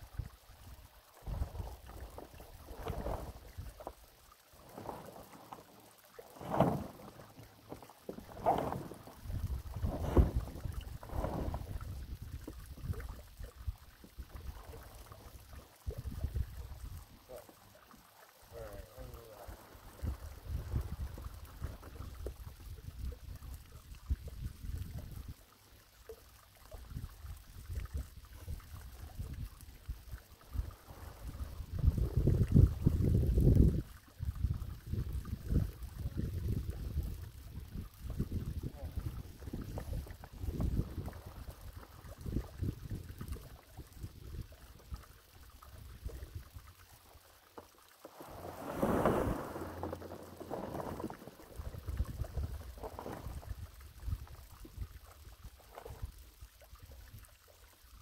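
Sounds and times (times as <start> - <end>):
wind rumble on microphone: 0.0 - 3.9, 8.2 - 17.4, 18.5 - 25.4, 26.7 - 46.8, 48.2 - 57.3
wind buffeting microphone: 9.2 - 13.1, 19.9 - 25.3, 30.5 - 44.6
plastic sheet rustling: 48.1 - 51.5.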